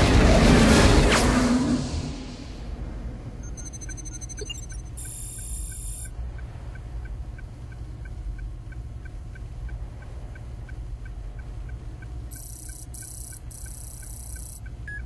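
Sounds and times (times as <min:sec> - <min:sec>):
low steady rumble: 0:00.0 - 0:15.0
short high electronic beeps: 0:03.4 - 0:06.1, 0:12.3 - 0:15.0.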